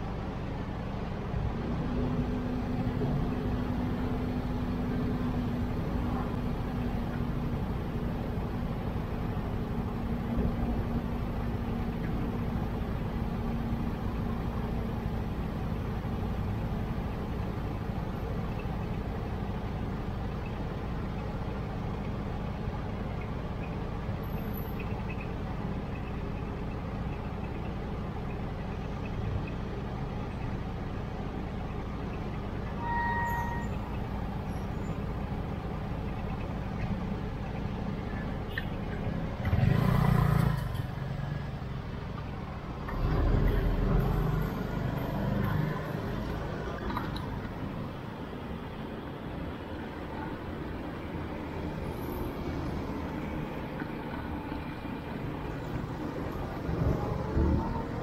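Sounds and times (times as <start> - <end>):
heavy vehicle engine rumble: 0.0 - 58.0
road traffic din: 0.0 - 58.0
short horn beep: 32.8 - 33.9.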